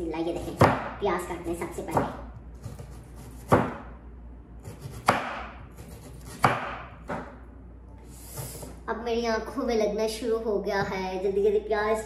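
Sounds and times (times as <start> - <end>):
knife chopping on wooden board: 0.4 - 1.0, 1.8 - 3.9, 4.6 - 7.3.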